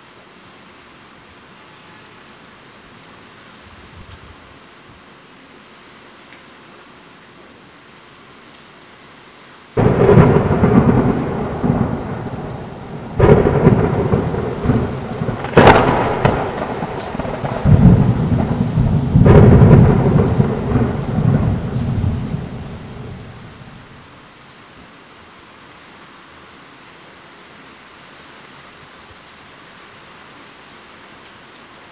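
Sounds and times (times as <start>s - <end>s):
steady rain: 0.0s - 31.9s
thunder cracks and rumbles: 9.8s - 24.0s.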